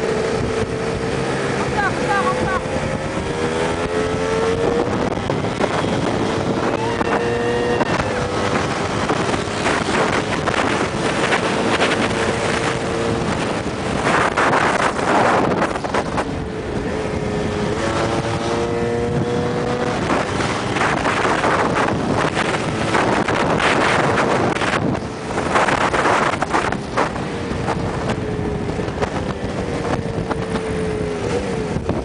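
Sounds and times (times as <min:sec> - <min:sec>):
scooter engines running: 0:00.0 - 0:32.0
wind buffeting on microphone: 0:00.0 - 0:32.0.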